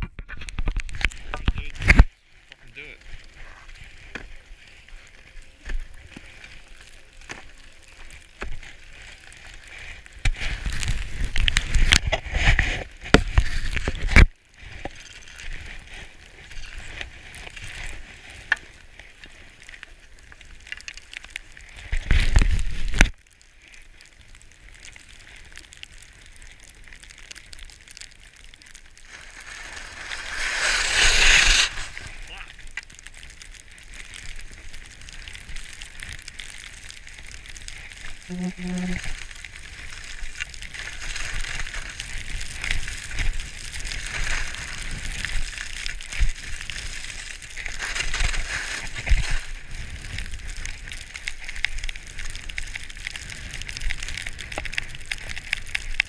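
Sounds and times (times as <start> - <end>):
skis hissing through powder snow: 2.2 - 19.9, 28.8 - 32.7, 35.5 - 55.4.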